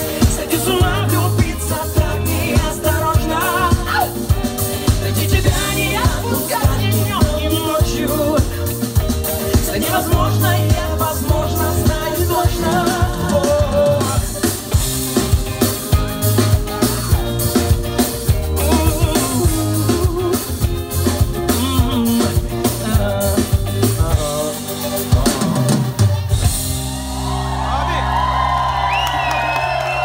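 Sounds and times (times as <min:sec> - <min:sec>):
drum kit beat: 0:00.0 - 0:27.5
live pop band playing: 0:00.0 - 0:30.0.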